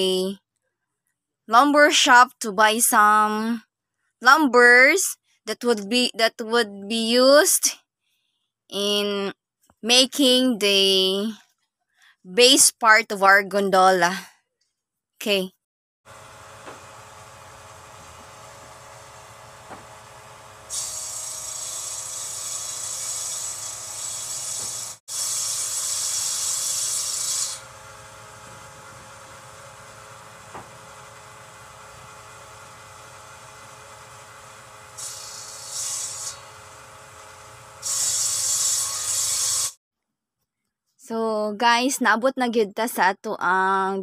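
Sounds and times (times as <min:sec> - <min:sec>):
timber being cut by machine: 0:16.1 - 0:39.8
woodworking machinery humming: 0:16.1 - 0:39.8.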